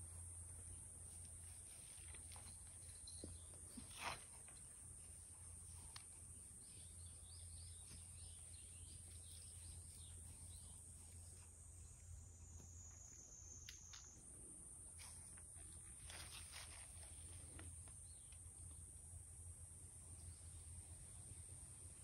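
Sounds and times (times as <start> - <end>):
faint bird chirps: 6.4 - 14.2.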